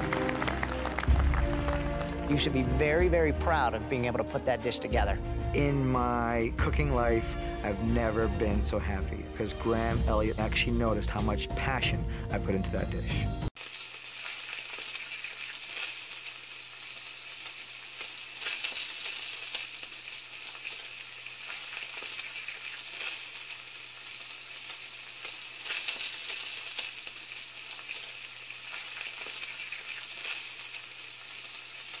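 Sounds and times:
food sizzling in a pan: 13.6 - 32.0.

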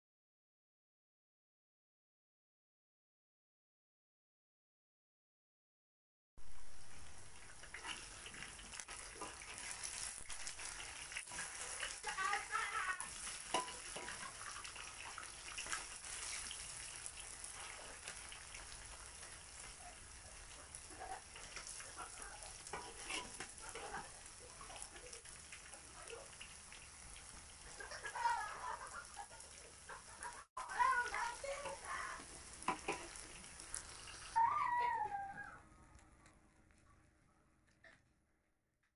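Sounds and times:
deep-frying sizzle and crackling: 6.4 - 34.7.

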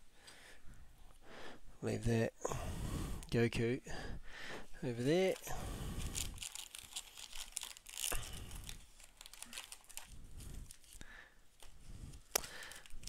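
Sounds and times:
plastic packs rustling and crinkling: 4.7 - 13.0.

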